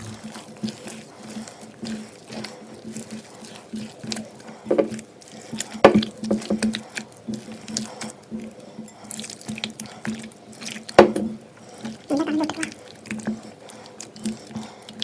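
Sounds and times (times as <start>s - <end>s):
hand squelching wet batter: 0.0s - 15.0s.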